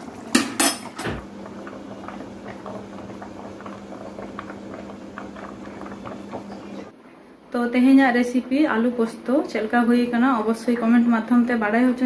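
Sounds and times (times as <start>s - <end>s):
curry bubbling: 0.0s - 6.9s
steady low hum: 1.0s - 8.8s.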